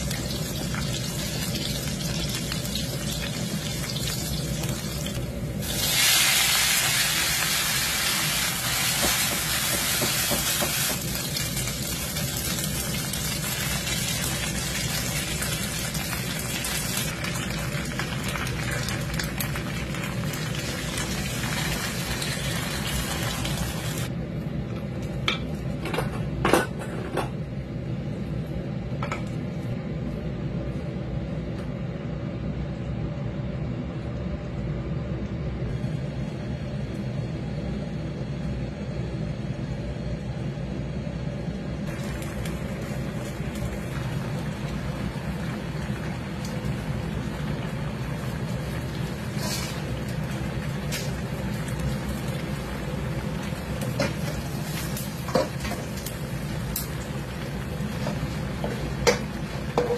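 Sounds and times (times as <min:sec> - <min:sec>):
noodles sizzling in hot oil: 0:00.0 - 0:24.1, 0:41.9 - 0:59.9
water heating in a pot: 0:00.0 - 0:24.2, 0:41.8 - 0:59.9.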